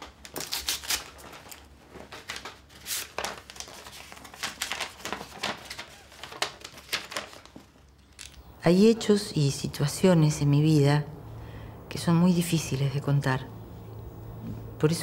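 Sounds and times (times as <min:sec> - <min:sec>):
paper rustling and crinkling: 0:00.0 - 0:08.4.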